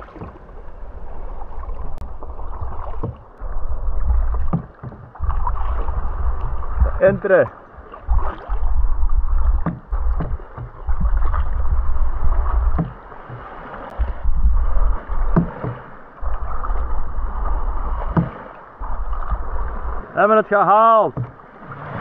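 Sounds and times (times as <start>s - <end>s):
low microphone rumble: 0.0s - 7.1s, 7.8s - 13.1s, 13.9s - 18.2s
paddles splashing in water: 0.0s - 22.0s
short knocks: 4.4s - 5.2s, 9.6s - 11.2s, 12.7s - 13.4s, 21.1s - 21.4s.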